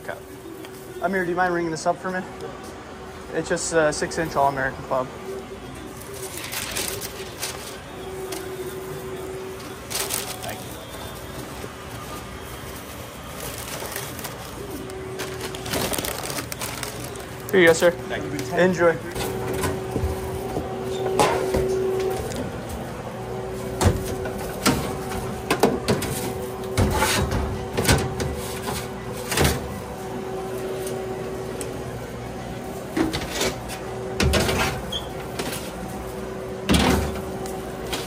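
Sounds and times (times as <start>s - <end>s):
steady hum: 0.0s - 38.0s
doors and containers clattering: 23.7s - 29.9s, 32.9s - 35.8s, 36.6s - 38.0s.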